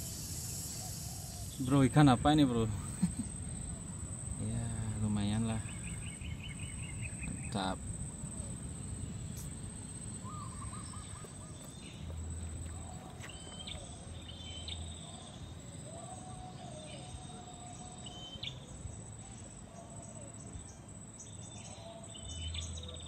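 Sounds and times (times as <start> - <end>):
low outdoor rumble: 0.0 - 16.0
wild birds calling: 0.0 - 18.6.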